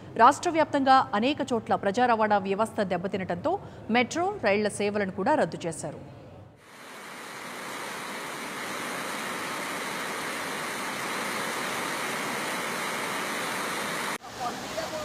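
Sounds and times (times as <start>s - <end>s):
fast-flowing river rushing: 6.7s - 15.0s.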